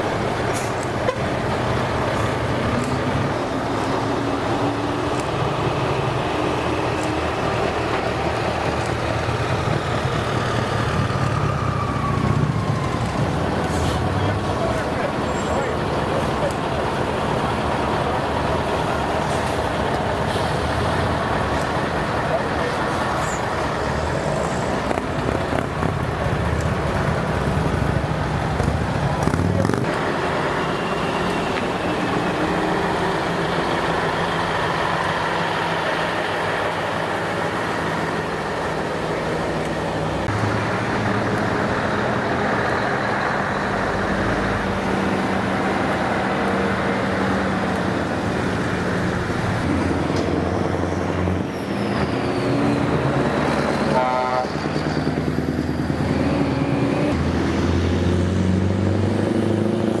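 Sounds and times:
diesel truck engines running: 0.0 - 60.0.

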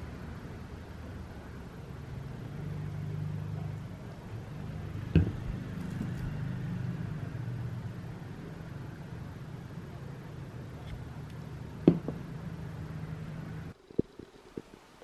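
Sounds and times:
plastic bottle knocking on table: 5.2 - 5.4, 11.9 - 12.2.

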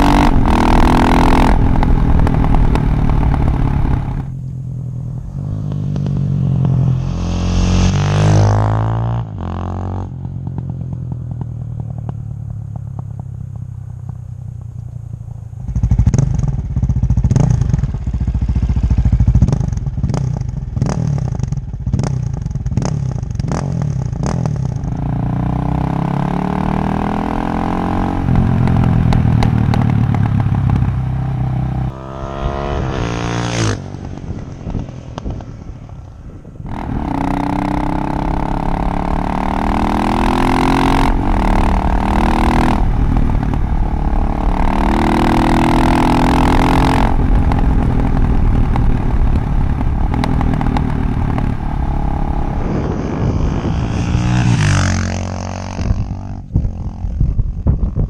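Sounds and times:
motorcycle engine revving: 0.0 - 58.0
sharp exhaust cracks: 33.5 - 54.6.

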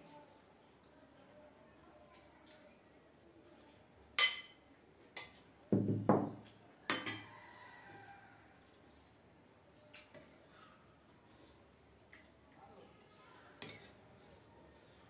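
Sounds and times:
spoon clinking on metal plates: 4.1 - 5.5, 6.9 - 7.4, 13.6 - 14.0.

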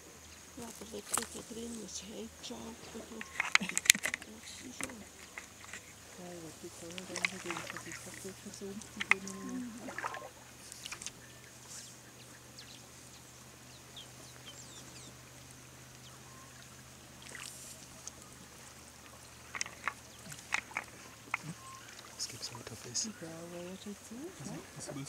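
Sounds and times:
sharp clicks and water drips: 2.8 - 11.2, 15.4 - 22.9
faint bird chirps: 7.5 - 25.0
marsh ambience: 17.5 - 25.0.

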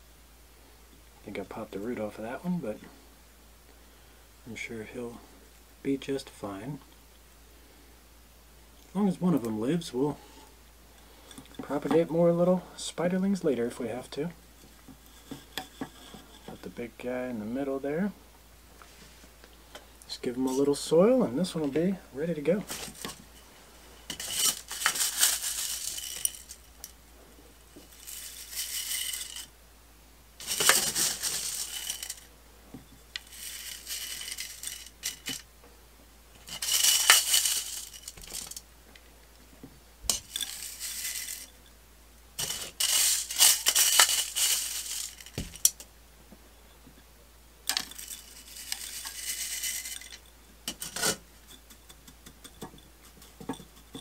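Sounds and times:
soil grains poured into a pot: 24.1 - 26.7, 27.8 - 29.5, 30.4 - 32.3, 33.2 - 35.4, 40.1 - 41.5, 42.4 - 45.4, 47.7 - 50.2.

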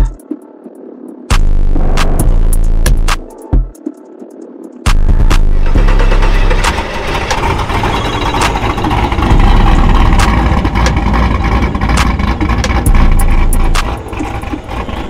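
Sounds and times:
car engine running with deep exhaust: 5.0 - 15.0.

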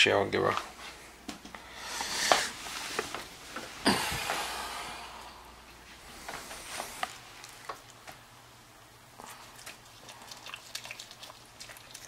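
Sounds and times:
dog chewing wet clicks: 9.2 - 12.0.

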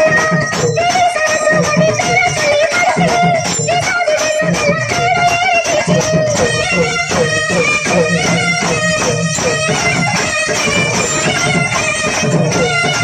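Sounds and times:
steady drum beats: 0.0 - 13.0
double-reed pipe melody: 6.4 - 13.0.

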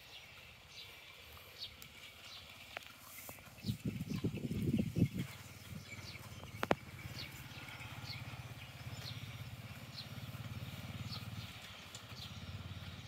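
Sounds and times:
bird calling: 0.0 - 13.0
motorbike engine running: 3.4 - 13.0.

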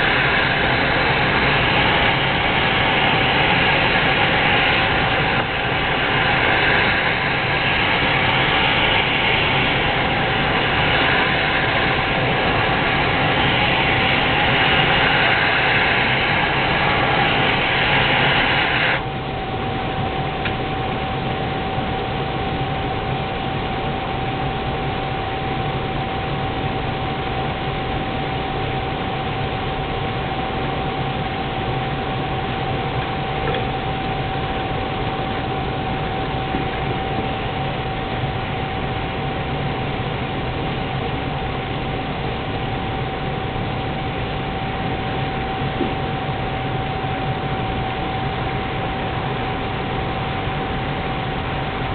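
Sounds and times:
gas burner flame rushing: 0.0 - 20.7.

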